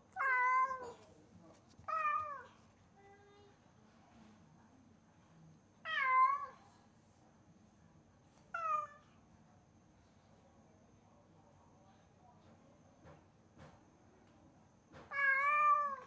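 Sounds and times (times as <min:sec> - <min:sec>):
cat meowing loudly: 0:15.1 - 0:16.0.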